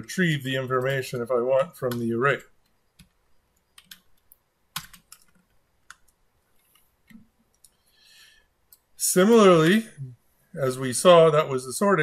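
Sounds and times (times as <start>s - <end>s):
computer keyboard keystrokes: 3.0s - 7.8s.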